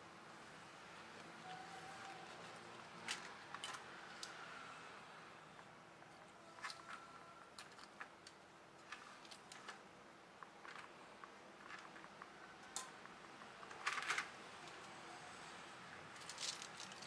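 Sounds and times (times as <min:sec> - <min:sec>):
plastic clatter: 0:16.2 - 0:17.0.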